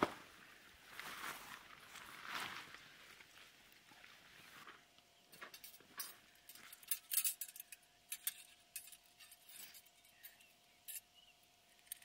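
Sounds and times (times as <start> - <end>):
gear clinking and rattling: 5.3 - 11.2.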